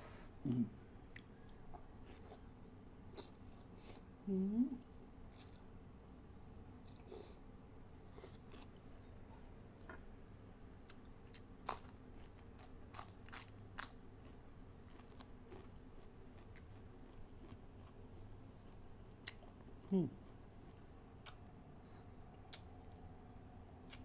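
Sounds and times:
person chewing: 8.1s - 8.9s, 10.9s - 22.7s.

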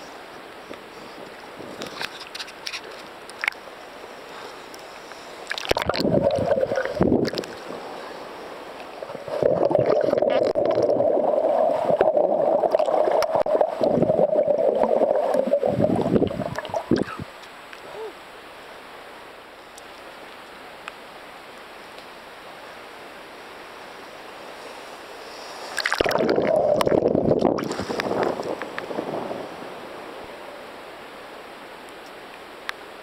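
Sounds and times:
muffled underwater rushing: 4.1s - 17.4s, 24.5s - 31.1s.

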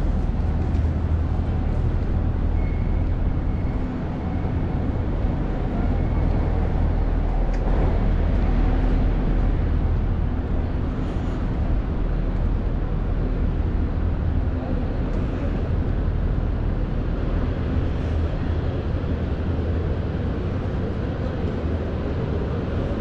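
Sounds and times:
street noise: 0.0s - 23.0s.

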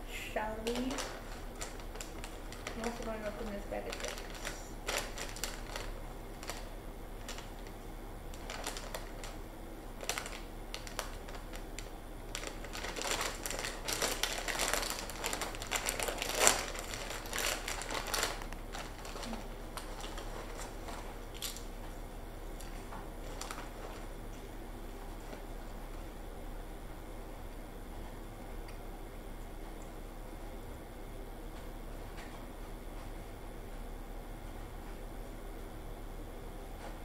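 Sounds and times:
plastic chip bag crinkling: 0.6s - 24.2s.

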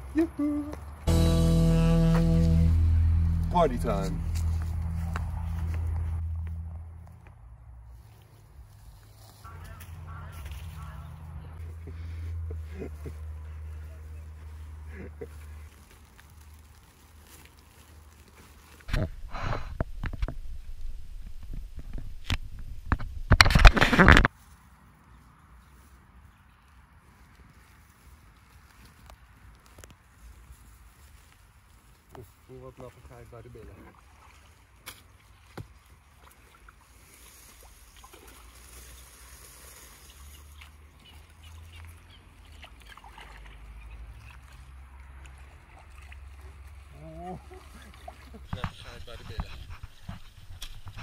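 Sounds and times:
low steady rumble: 1.1s - 8.1s
reeds brushing hull: 7.8s - 22.2s, 29.7s - 44.7s, 45.3s - 51.0s
plastic film crinkling: 14.7s - 19.0s
paddle splashing in water: 33.7s - 51.0s.

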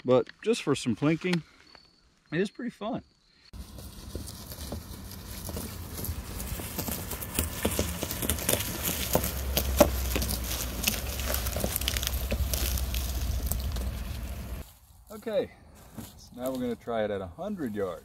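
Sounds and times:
pickup truck engine rumbling: 3.6s - 14.6s
dry corn stubble crackling: 3.6s - 18.0s.

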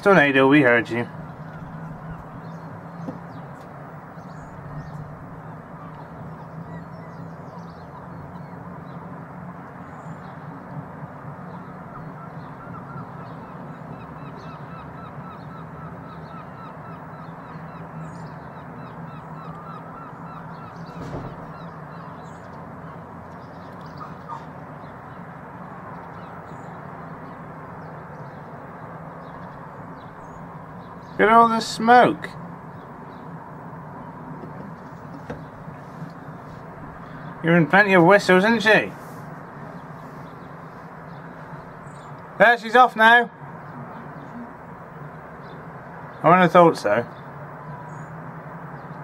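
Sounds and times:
birds chirping and calling: 0.0s - 9.2s, 11.4s - 48.2s
distant rumble and hiss: 0.0s - 49.0s
sharp knock: 20.9s - 21.6s.

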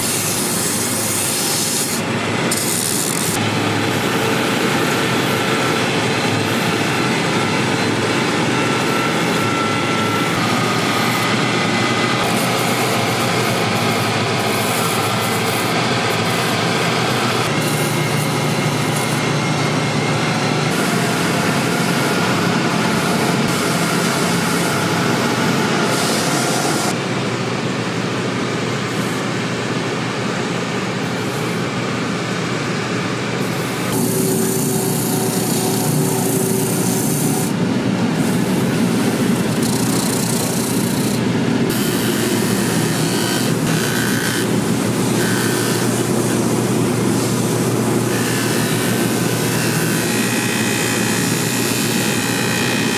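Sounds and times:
sanding belts grinding: 0.0s - 26.9s, 33.5s - 37.6s, 38.2s - 52.9s.

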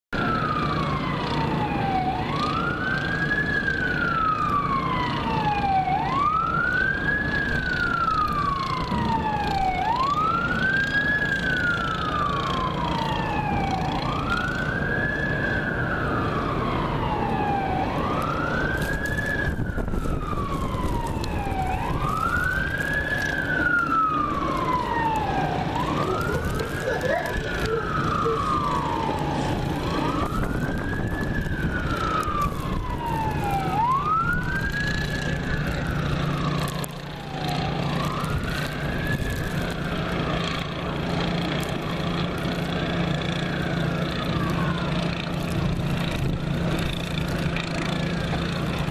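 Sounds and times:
fire engine siren wailing: 0.1s - 48.9s
second siren wail: 0.2s - 48.9s.

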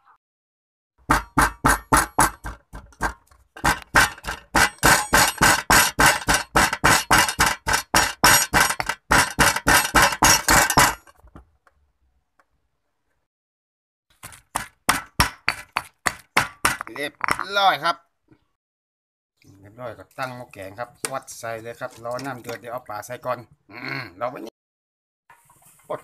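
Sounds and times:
pestle pounding in stone mortar: 1.0s - 11.1s, 14.2s - 17.6s.

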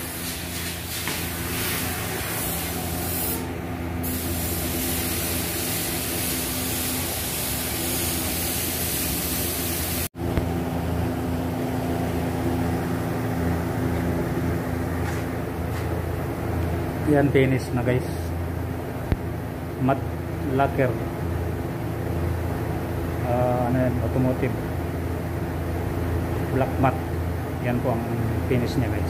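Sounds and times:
spray gun hissing: 0.0s - 10.1s.

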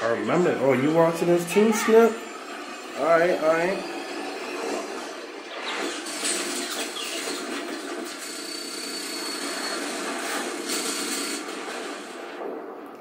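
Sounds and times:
action film soundtrack on tv: 0.0s - 13.0s.

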